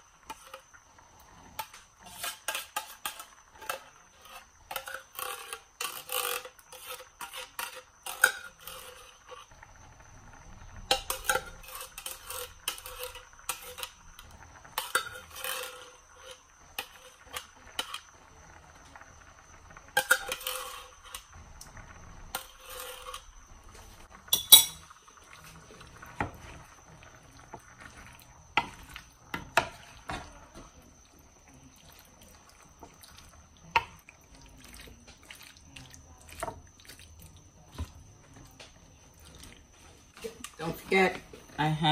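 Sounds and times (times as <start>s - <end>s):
spoon clinking against can and pan: 24.3s - 24.9s.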